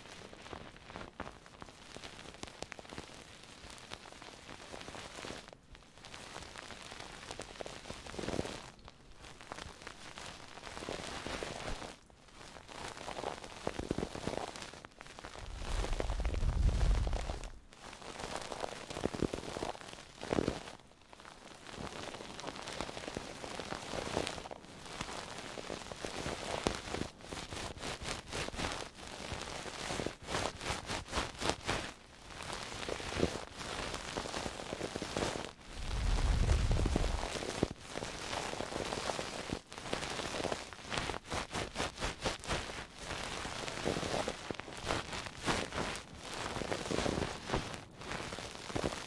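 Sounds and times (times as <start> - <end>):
rubbing and scratching on microphone: 6.2 - 20.8, 21.7 - 49.0
low bump on microphone: 15.6 - 17.5, 35.9 - 37.3.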